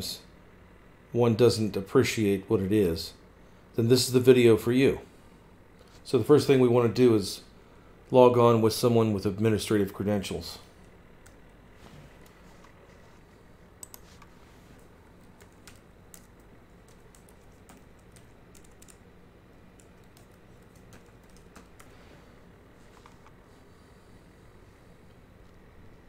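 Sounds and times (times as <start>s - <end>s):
low steady hum: 0.0s - 26.0s
faint keyboard typing: 10.8s - 13.1s, 13.7s - 22.0s, 22.8s - 23.4s.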